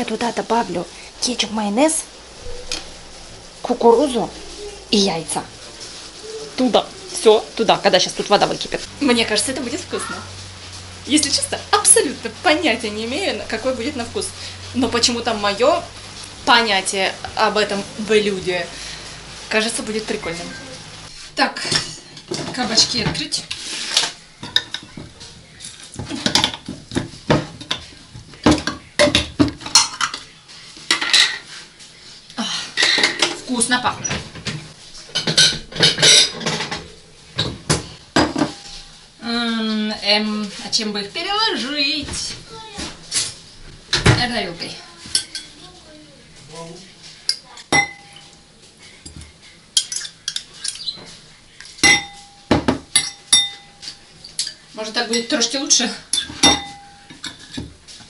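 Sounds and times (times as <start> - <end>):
utensils and dishes clinking: 21.6 - 31.5, 32.7 - 38.9, 45.0 - 45.6, 47.2 - 58.0.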